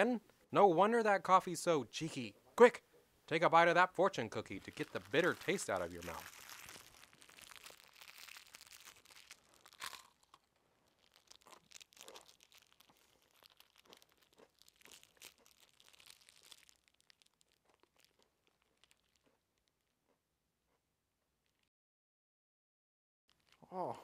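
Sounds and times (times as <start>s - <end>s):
plastic wrapper crinkling: 4.4s - 19.9s, 23.3s - 23.6s.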